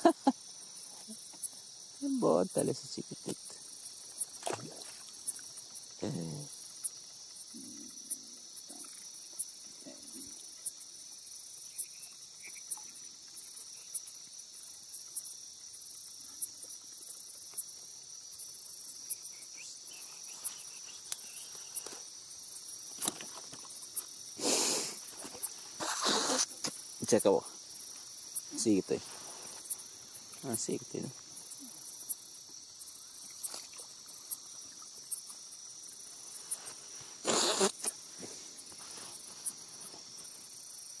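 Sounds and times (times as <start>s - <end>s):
night insects chorus: 0.0s - 41.0s
water splashing and dripping: 4.2s - 5.6s.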